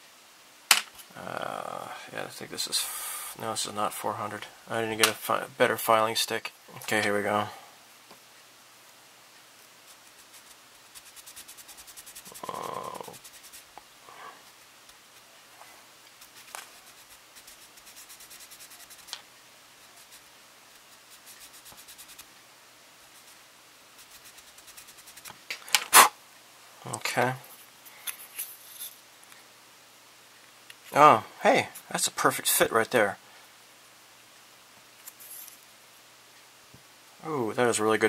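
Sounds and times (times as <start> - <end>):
sanding stick rubbing on plastic: 9.8 - 13.7, 16.2 - 19.1, 19.8 - 22.3.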